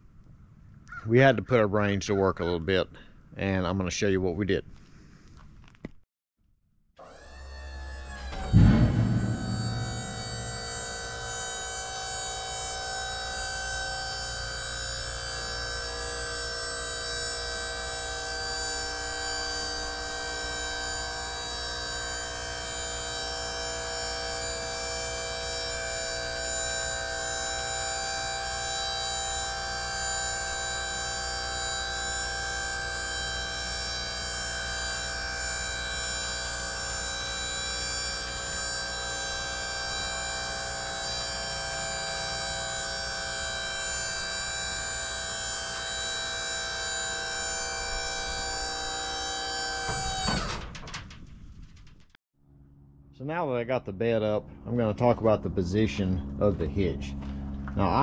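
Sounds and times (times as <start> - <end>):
hydraulic pump whining: 7.0 - 51.2.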